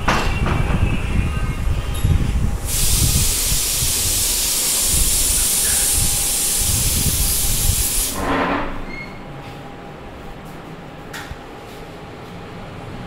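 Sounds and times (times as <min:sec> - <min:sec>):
loud steady hiss: 0:02.4 - 0:08.4.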